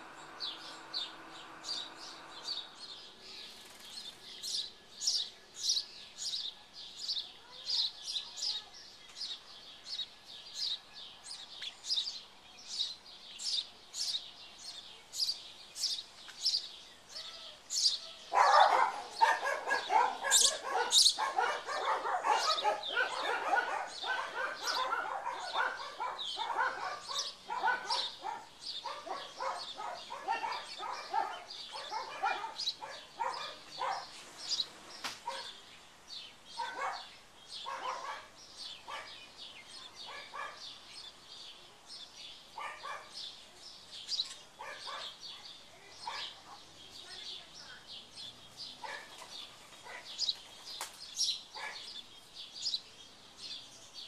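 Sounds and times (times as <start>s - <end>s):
nestlings chattering: 0.0s - 9.4s, 11.4s - 35.6s
sparrow chirps: 0.0s - 54.0s.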